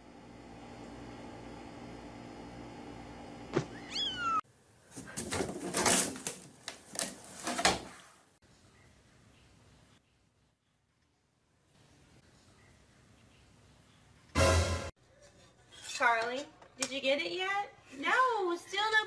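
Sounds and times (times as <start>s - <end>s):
cat meowing: 3.7s - 4.4s
harsh cat cries: 3.8s - 4.4s.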